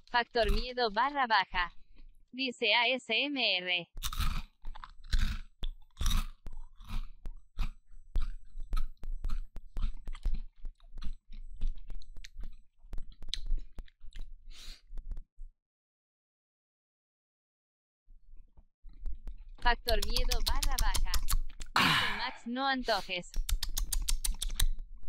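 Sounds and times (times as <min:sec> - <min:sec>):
person chewing crunchy snack: 0:00.4 - 0:02.2, 0:03.9 - 0:15.1, 0:18.9 - 0:22.3, 0:23.3 - 0:24.8
wet mouth clicks: 0:04.0 - 0:15.1, 0:18.9 - 0:21.8, 0:22.9 - 0:24.8.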